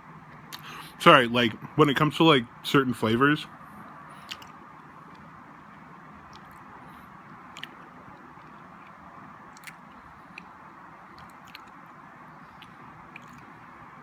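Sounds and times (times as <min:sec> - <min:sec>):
faint steady hiss: 0:00.0 - 0:14.0
mouth clicks and smacks: 0:00.3 - 0:01.0, 0:04.1 - 0:14.0
person chewing: 0:04.2 - 0:05.2, 0:06.3 - 0:13.7.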